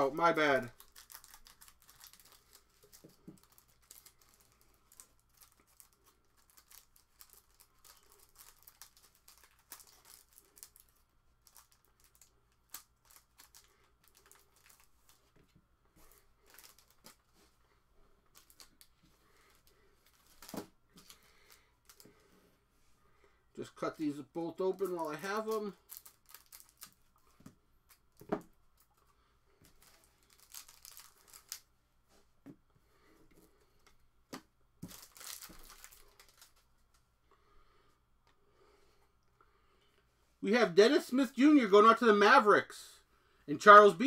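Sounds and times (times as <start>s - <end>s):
plastic wrappers crinkling: 0.0s - 15.4s, 16.0s - 17.5s, 18.3s - 22.3s, 23.7s - 29.0s, 29.6s - 31.7s, 34.8s - 37.0s.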